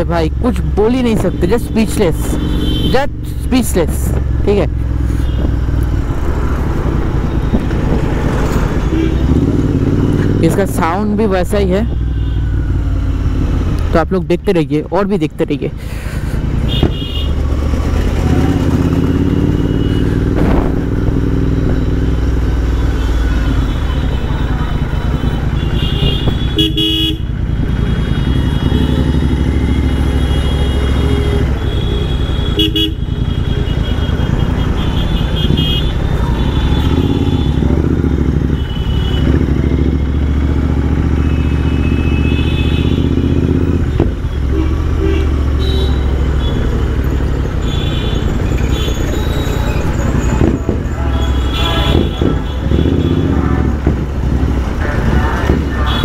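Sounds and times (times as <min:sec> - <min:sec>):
vehicle horns tooting: 0:01.2 - 0:03.5, 0:05.0 - 0:05.6, 0:08.6 - 0:10.4, 0:11.8 - 0:12.7, 0:16.6 - 0:17.4, 0:18.3 - 0:20.8, 0:22.6 - 0:40.4, 0:41.0 - 0:54.1, 0:54.8 - 0:56.0
motorcycle engine running: 0:04.1 - 0:13.9, 0:16.5 - 0:56.0.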